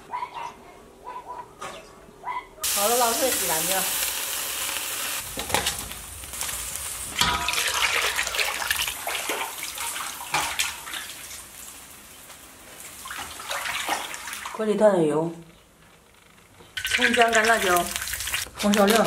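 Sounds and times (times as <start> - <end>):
water splashing and pouring: 5.2 - 11.6, 12.8 - 14.6, 16.8 - 19.0.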